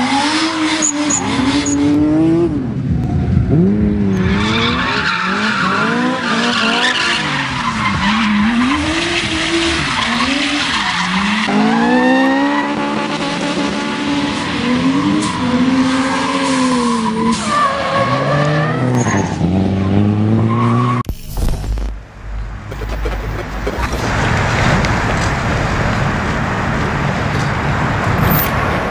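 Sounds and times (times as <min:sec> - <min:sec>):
race car engine revving: 0:00.0 - 0:27.1
tyres squealing and skidding: 0:04.1 - 0:13.0, 0:14.2 - 0:21.0.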